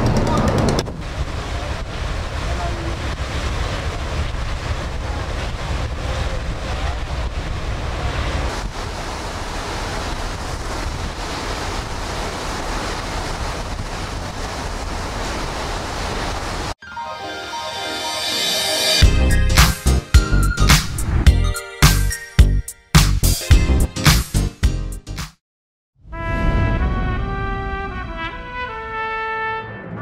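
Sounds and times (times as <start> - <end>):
wind buffeting the microphone: 0.0 - 15.9
rush of ship's wake: 0.3 - 16.8.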